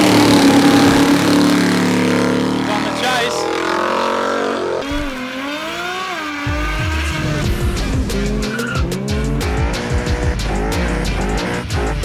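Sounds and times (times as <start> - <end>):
engines revving: 0.0 - 12.0
heavy low thumps: 6.5 - 11.3
tyre squeal: 8.4 - 8.9.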